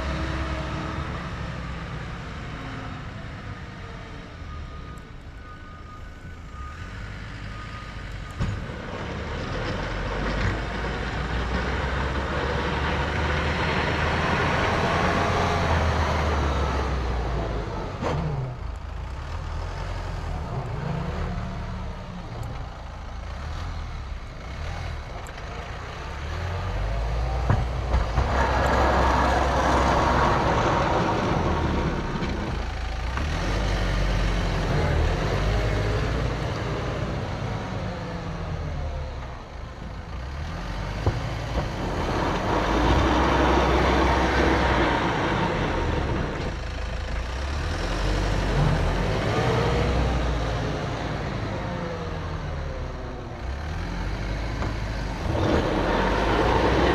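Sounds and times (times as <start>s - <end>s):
tractor diesel engine rumbling: 0.0s - 56.9s
snow pusher scraping pavement: 55.0s - 56.9s.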